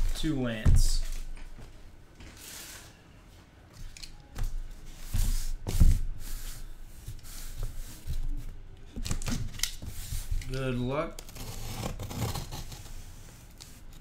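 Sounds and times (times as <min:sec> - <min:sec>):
cutting and scraping cardboard: 0:11.2 - 0:14.0.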